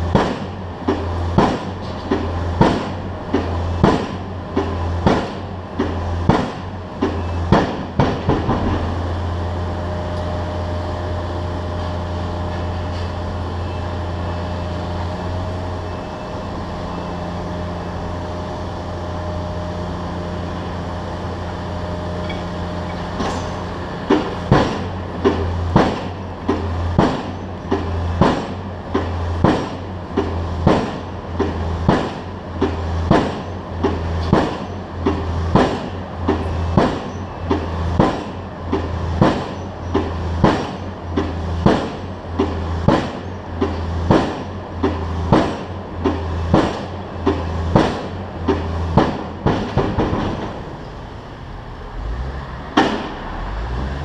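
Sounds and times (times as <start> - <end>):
pile driver hammer banging: 0.0 - 9.0, 22.3 - 50.7, 52.7 - 53.2
low engine hum: 0.0 - 54.0.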